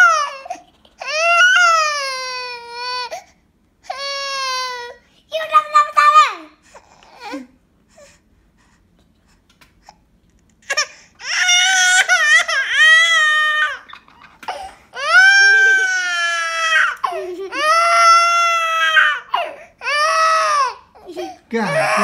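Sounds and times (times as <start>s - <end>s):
baby crying: 0.0s - 3.3s, 3.9s - 5.0s, 10.6s - 22.0s.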